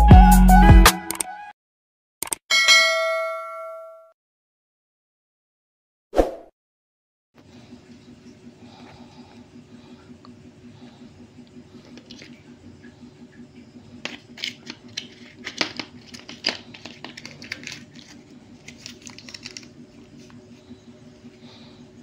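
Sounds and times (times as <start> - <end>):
steady low hum: 7.4 - 22.0
plastic bag crinkling: 14.3 - 19.8.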